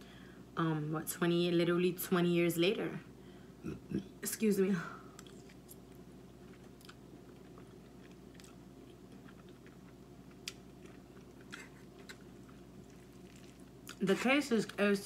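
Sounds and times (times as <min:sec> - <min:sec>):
close-up chewing: 0:05.2 - 0:14.8.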